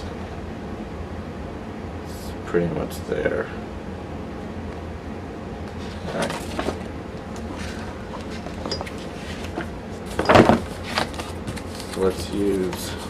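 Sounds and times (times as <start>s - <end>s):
paper pages rustling: 5.8s - 13.0s.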